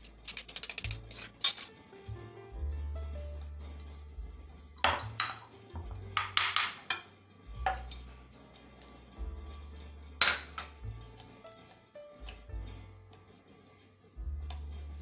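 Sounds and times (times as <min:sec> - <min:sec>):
background music with bass: 0:02.0 - 0:06.4, 0:07.3 - 0:11.5.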